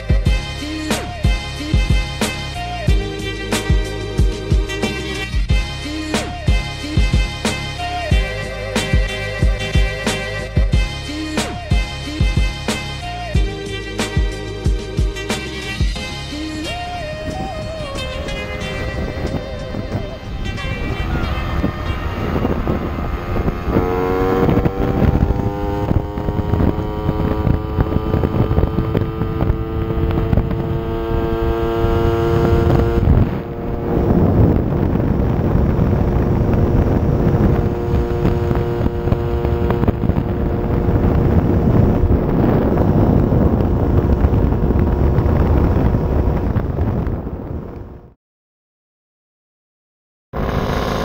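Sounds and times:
moped engine accelerating: 0:14.2 - 0:48.2, 0:50.4 - 0:51.0
wind on microphone: 0:16.6 - 0:48.2.

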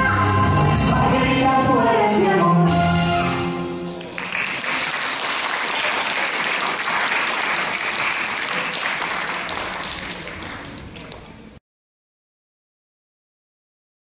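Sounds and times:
audience applauding: 0:04.0 - 0:11.6.

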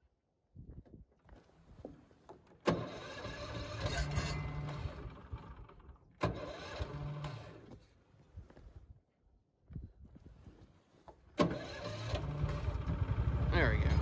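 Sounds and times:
small engine revving: 0:02.7 - 0:07.7, 0:11.4 - 0:14.0.

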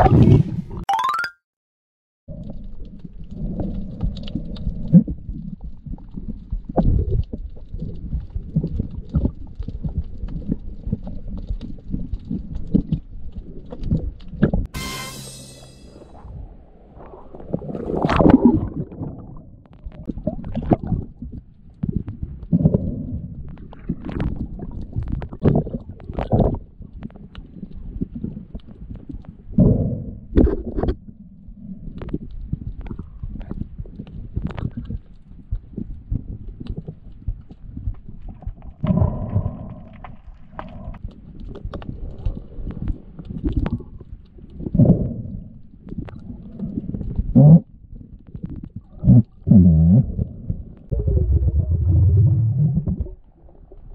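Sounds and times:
water surges and bubbles: 0:00.0 - 0:01.3, 0:02.3 - 0:15.2, 0:15.9 - 0:53.9
muffled water surge: 0:15.9 - 0:21.4, 0:48.0 - 0:53.9
muffled underwater splashing: 0:16.0 - 0:30.9, 0:31.6 - 0:53.9.

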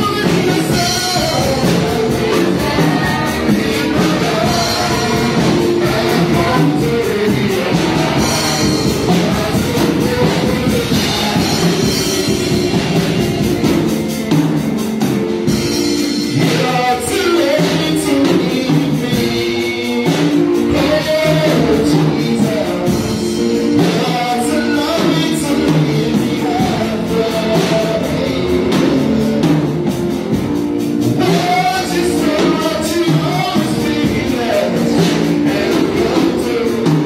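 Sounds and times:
man singing into microphone: 0:00.0 - 0:14.0, 0:16.2 - 0:30.1, 0:31.0 - 0:37.0
electric keyboard with band: 0:00.0 - 0:37.0.

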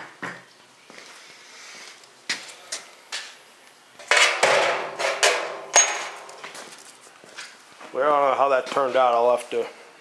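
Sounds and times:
metal clattering and scraping: 0:04.0 - 0:07.0
sharp metal clank: 0:04.1 - 0:06.6.

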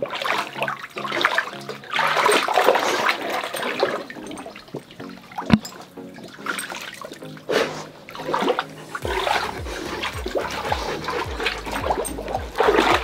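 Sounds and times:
water sloshing and splashing: 0:00.0 - 0:13.0
low thuds: 0:09.0 - 0:13.0.

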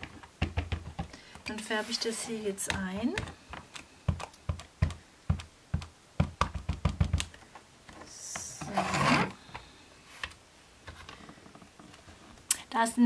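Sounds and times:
ink pad tapping on stamp: 0:02.6 - 0:07.3.

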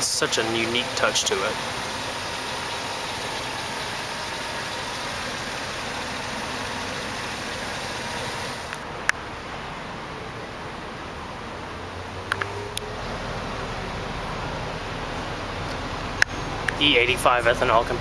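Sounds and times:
truck engine idling: 0:00.0 - 0:08.9.

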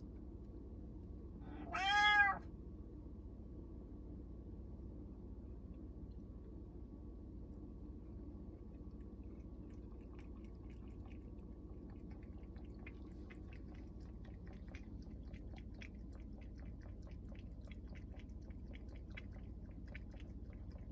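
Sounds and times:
low steady hum: 0:00.0 - 0:20.9
cat lapping water: 0:08.1 - 0:20.9.

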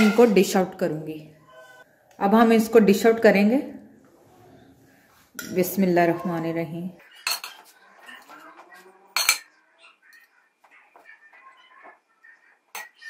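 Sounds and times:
spoon clinking on pot and dish: 0:07.2 - 0:07.7, 0:09.2 - 0:09.5.

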